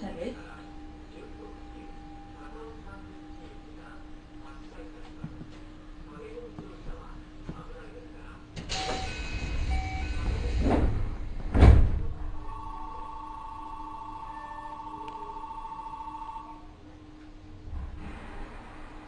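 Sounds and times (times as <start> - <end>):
constant low hum: 0.0 - 19.0
train doors sliding shut: 8.6 - 12.5.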